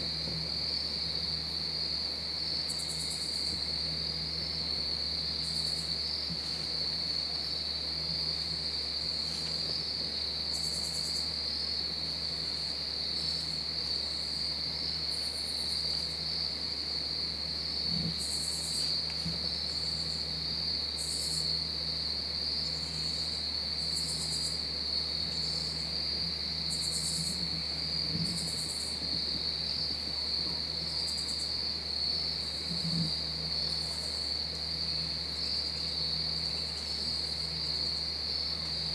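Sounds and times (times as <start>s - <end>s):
buzzing insect calls: 0.0s - 38.9s
crickets trilling: 0.0s - 38.9s.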